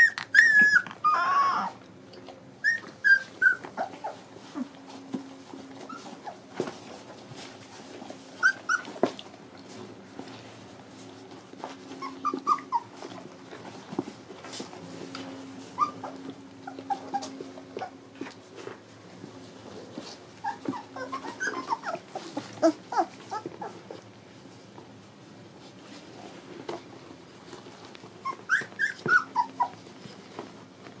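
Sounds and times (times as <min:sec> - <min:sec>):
puppies whimpering and squeaking: 0:00.0 - 0:01.9, 0:02.6 - 0:06.6, 0:08.1 - 0:09.2, 0:11.7 - 0:13.4, 0:15.4 - 0:18.4, 0:19.9 - 0:24.1, 0:28.0 - 0:30.4.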